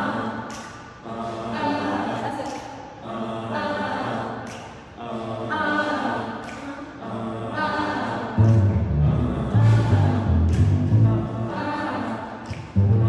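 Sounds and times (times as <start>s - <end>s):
woman singing a cappella: 0.0s - 8.4s, 11.0s - 13.0s.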